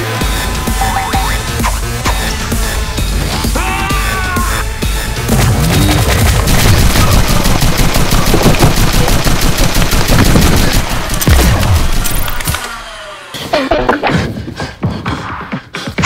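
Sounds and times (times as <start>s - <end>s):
rapid blaster fire: 5.2s - 13.0s.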